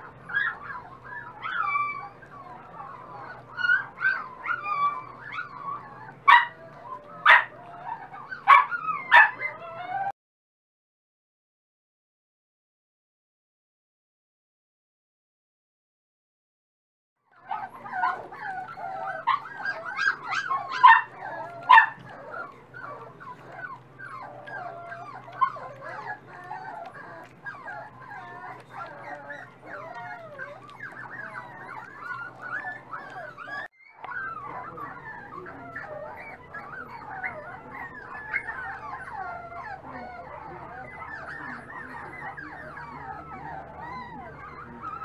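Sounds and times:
puppies whining and squeaking: 0.0s - 10.2s, 17.3s - 45.0s
sharp puppy yips: 17.9s - 34.6s.

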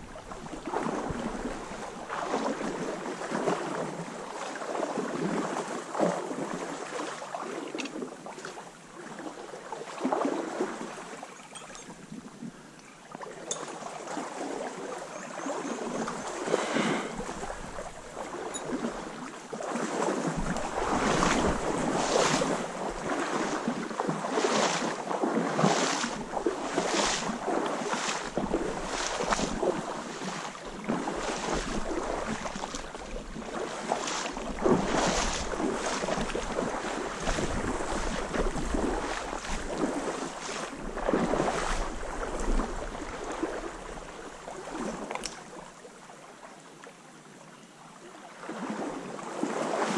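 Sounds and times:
wind rumble on microphone: 0.0s - 4.1s, 20.2s - 24.2s, 26.0s - 44.4s
water sloshing around legs: 0.0s - 45.6s
stream current rushing: 0.0s - 45.7s.

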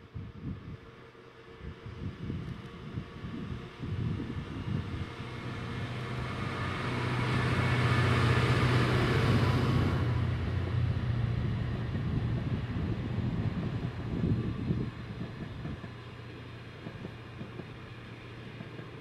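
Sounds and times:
diesel locomotive engine droning: 0.0s - 19.0s
train wagons rolling by: 4.8s - 19.0s.

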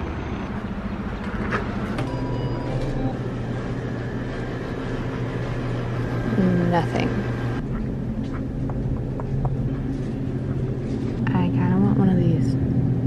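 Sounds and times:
coolers humming: 0.0s - 13.0s.

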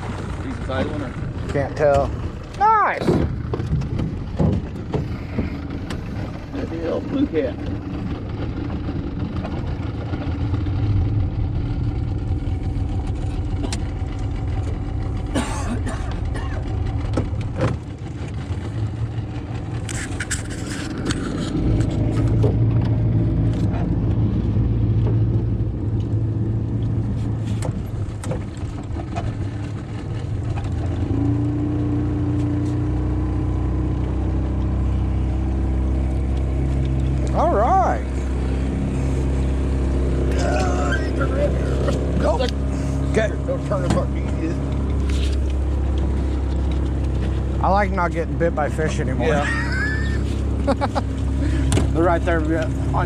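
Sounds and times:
outboard motor running: 0.0s - 53.0s
sharp knocks and clatters: 3.0s - 6.2s.

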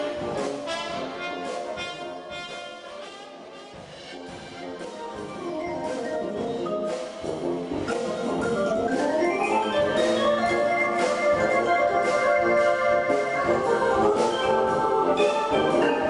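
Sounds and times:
brass band playing jazz: 0.0s - 16.0s
organ sweeping upward into chords: 5.4s - 16.0s.

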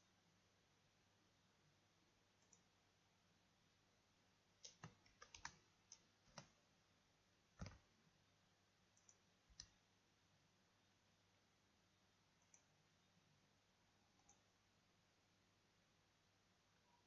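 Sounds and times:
mouse clicks: 2.4s - 2.7s, 4.6s - 6.6s, 9.0s - 9.8s, 12.4s - 12.7s, 14.2s - 14.5s
computer keyboard typing: 4.6s - 6.6s, 7.6s - 7.9s.

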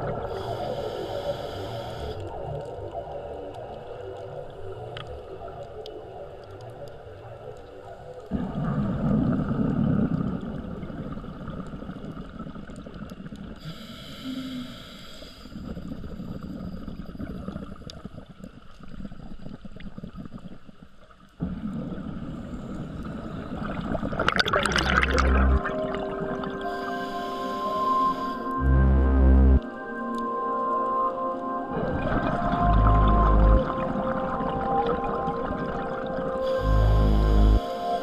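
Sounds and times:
gurgling water underwater: 0.0s - 14.7s, 15.5s - 38.0s
diver inhaling through regulator: 0.2s - 2.4s, 13.6s - 15.8s, 26.6s - 28.7s, 36.4s - 38.0s
exhaled bubbles: 8.3s - 13.6s, 21.4s - 27.1s, 31.7s - 38.0s.

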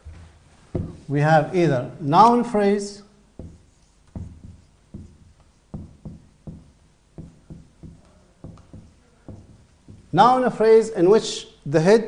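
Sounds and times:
marker pen on whiteboard: 0.7s - 1.2s, 3.2s - 11.0s.

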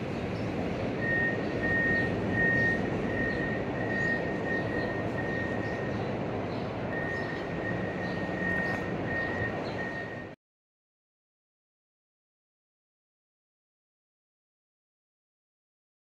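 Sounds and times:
loader engine running: 0.0s - 10.4s
reverse alarm beeping: 1.0s - 6.1s, 6.9s - 10.4s.

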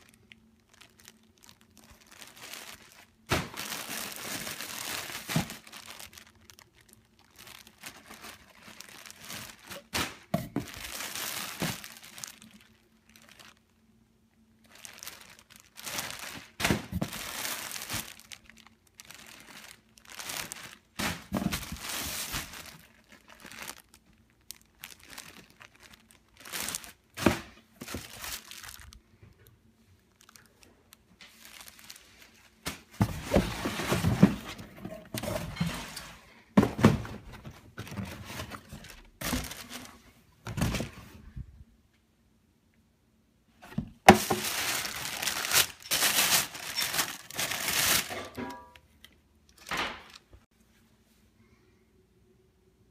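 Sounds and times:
plastic bag crinkling and tearing: 0.0s - 13.8s, 14.6s - 29.4s, 30.0s - 35.4s, 37.4s - 40.0s, 43.7s - 48.4s.

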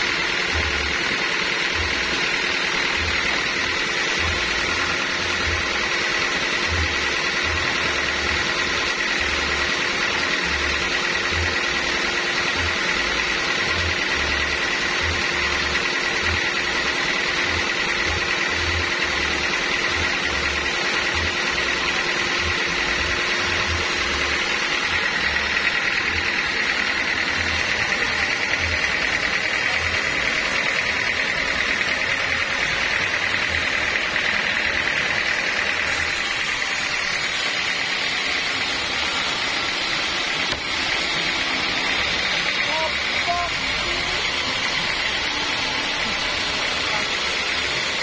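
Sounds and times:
sawmill machine noise: 0.0s - 48.0s
high-pitched saw tone: 35.8s - 48.0s.

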